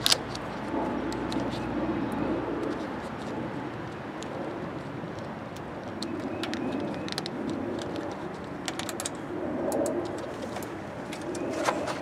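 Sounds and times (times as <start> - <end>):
dove cooing: 11.2 - 12.0.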